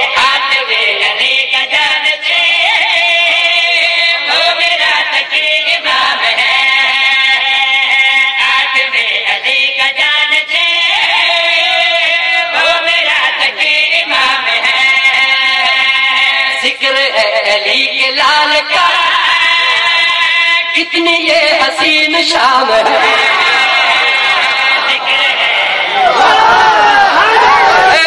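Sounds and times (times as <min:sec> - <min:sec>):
layered backing voices: 0:22.7 - 0:28.0.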